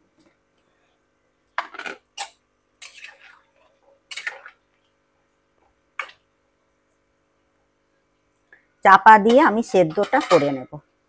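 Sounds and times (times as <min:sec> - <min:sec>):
food splashing into boiling water: 0:01.6 - 0:04.7.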